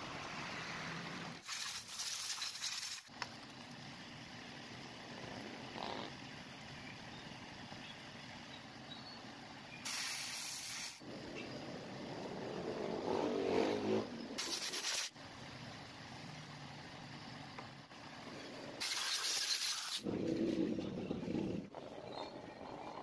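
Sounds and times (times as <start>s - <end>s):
pressurised spray hissing: 9.8s - 11.0s, 18.8s - 20.0s.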